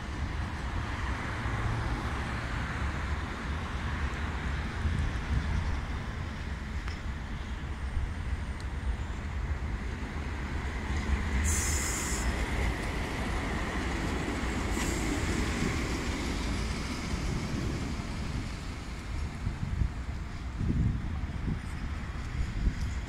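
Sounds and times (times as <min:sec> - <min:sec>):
city traffic: 0:00.0 - 0:23.0
tram rumbling on track: 0:00.0 - 0:23.0
short sharp hiss: 0:11.4 - 0:12.4.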